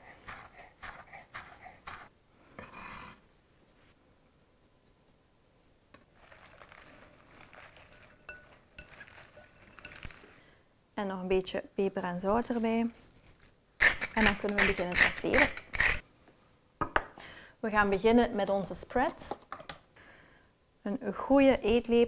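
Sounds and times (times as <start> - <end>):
knife scraping board: 0.2 - 3.2, 13.8 - 16.0
salad leaves rustling in bowl: 6.0 - 10.4, 12.2 - 13.6.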